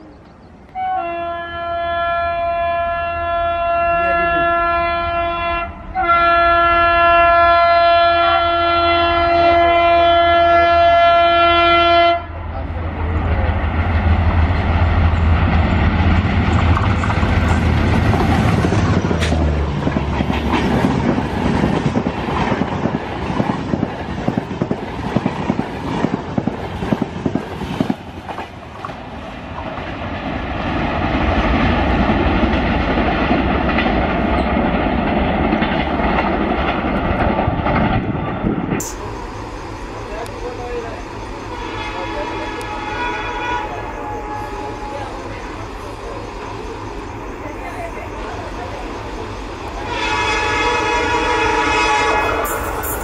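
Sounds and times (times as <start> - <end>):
train rumble: 0.0 - 53.0
locomotive engine drone: 12.2 - 22.4, 38.7 - 53.0
train wheels clickety-clack: 13.3 - 39.1.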